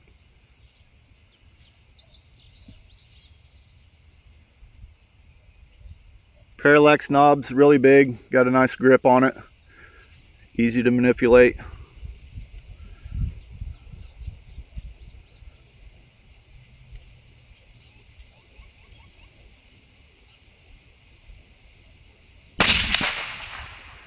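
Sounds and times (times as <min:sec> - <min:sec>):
insects droning: 0:00.0 - 0:24.0
rifle shot with echo: 0:22.6 - 0:24.0.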